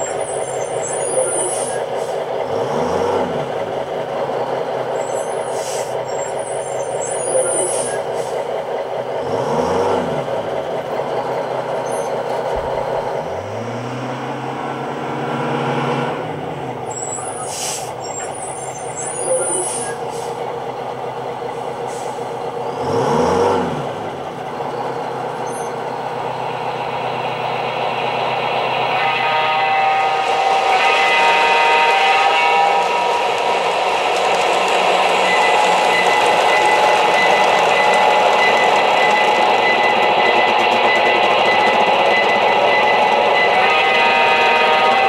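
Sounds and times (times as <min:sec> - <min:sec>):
model train rumble and hum: 0:00.0 - 0:45.0
steady horn-like tone: 0:28.8 - 0:33.2, 0:43.3 - 0:45.0.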